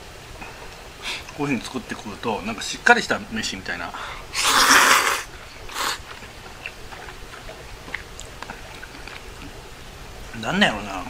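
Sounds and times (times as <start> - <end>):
noodles slurped: 4.3 - 9.8
soft chewing: 5.3 - 10.4.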